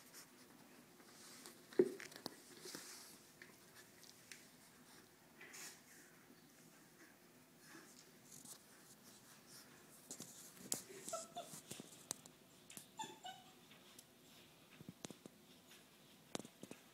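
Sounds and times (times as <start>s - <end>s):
puppy whimpering: 11.0s - 11.8s, 13.0s - 13.7s.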